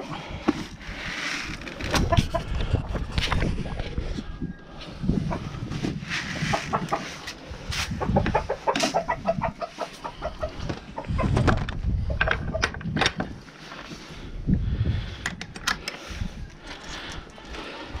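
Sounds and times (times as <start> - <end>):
wind buffeting microphone: 1.8 - 18.0
chickens clucking: 1.9 - 3.6, 4.9 - 12.8.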